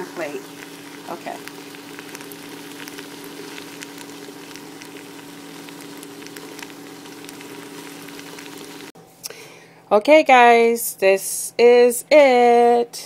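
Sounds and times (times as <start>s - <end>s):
food sizzling in a pan: 0.0s - 9.0s
steady low hum: 0.0s - 10.6s
small crackling pops: 0.2s - 9.0s.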